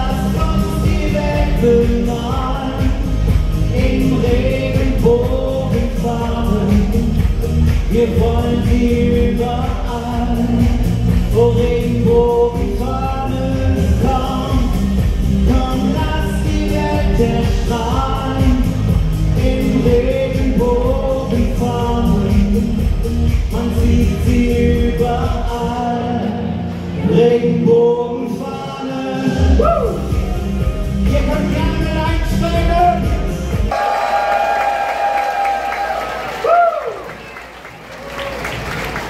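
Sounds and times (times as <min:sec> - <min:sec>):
person singing: 0:00.0 - 0:33.4
loud musical accompaniment: 0:00.0 - 0:37.0.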